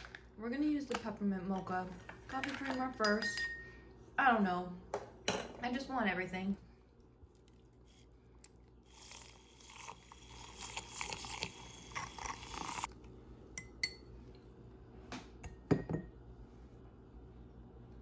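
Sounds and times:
milk frother whirring: 0:07.5 - 0:13.0.

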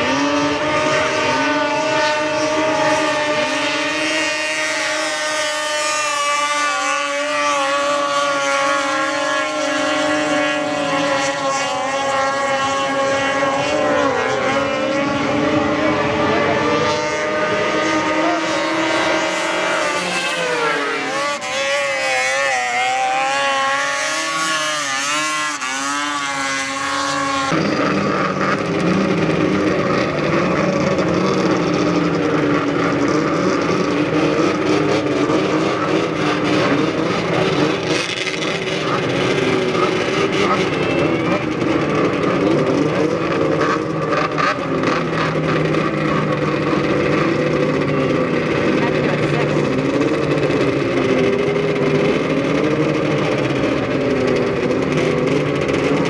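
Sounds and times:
snowmobile engines at high revs: 0:00.0 - 0:56.0.

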